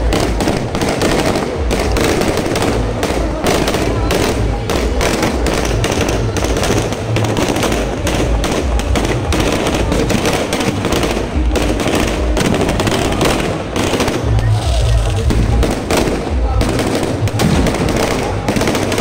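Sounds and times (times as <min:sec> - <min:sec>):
firecrackers cracking: 0:00.0 - 0:19.0.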